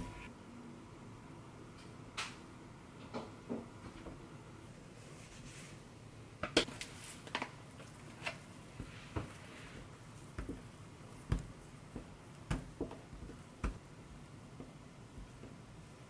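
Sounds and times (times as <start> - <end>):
dough taps on countertop: 10.4 - 10.6.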